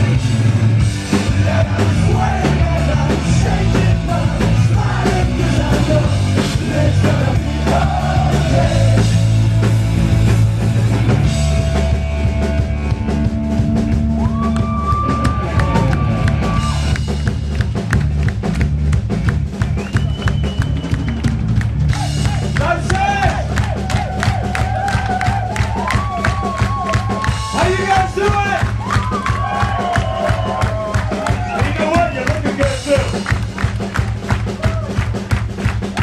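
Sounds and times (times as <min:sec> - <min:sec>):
live rock band playing: 0:00.0 - 0:36.0
person singing: 0:01.3 - 0:09.2.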